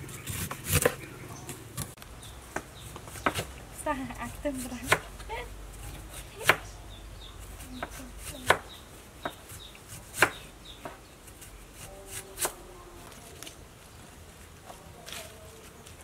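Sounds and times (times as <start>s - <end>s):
knife chopping on cutting board: 7.8s - 9.4s.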